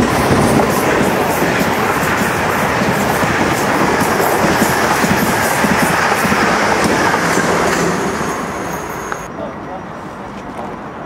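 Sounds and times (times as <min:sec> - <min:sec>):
train passing at speed: 0:00.0 - 0:11.0.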